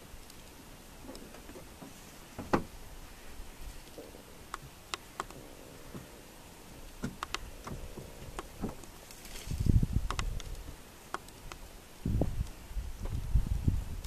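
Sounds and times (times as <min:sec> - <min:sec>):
twigs and branches snapping: 0:07.0 - 0:11.7.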